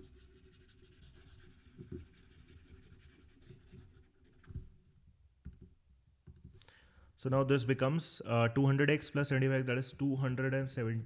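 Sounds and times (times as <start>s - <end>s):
stylus scratching on pen tablet: 0.0s - 4.5s.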